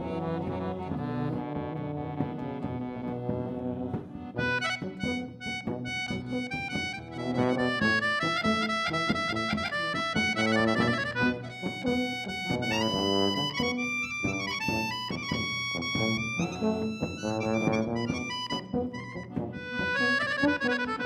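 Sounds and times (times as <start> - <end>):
accordion: 0.0 - 21.0
brass instrument playing tune: 0.0 - 21.0.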